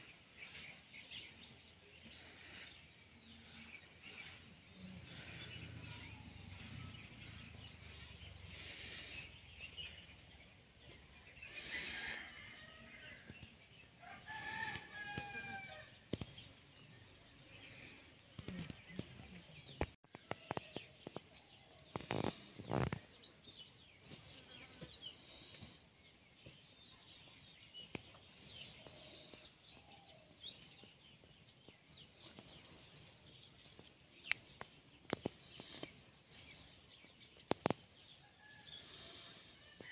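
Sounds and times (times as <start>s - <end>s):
rooster crowing: 14.0s - 15.9s
small bird chirping: 17.7s - 25.8s.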